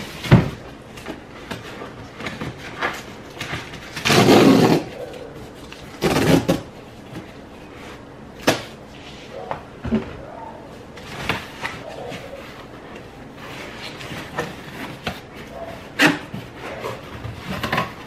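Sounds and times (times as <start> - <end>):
cardboard ripping open: 2.6 - 5.0, 5.7 - 6.7.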